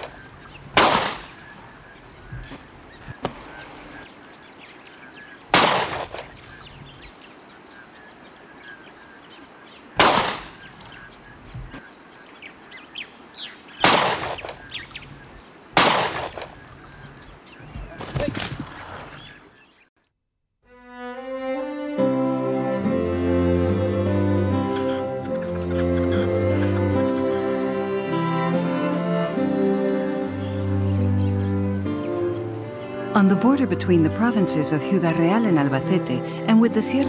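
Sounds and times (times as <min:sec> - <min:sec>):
faint bird calls: 0:00.0 - 0:15.6, 0:24.7 - 0:27.4
shotgun shots: 0:00.8 - 0:01.5, 0:05.5 - 0:06.4, 0:10.0 - 0:10.6, 0:13.8 - 0:14.6, 0:15.8 - 0:16.6.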